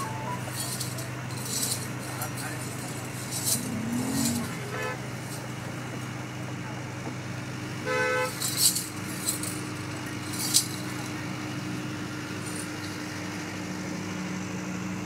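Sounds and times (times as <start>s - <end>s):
low background hum: 0.0s - 14.2s
short horn toot: 3.6s - 5.0s.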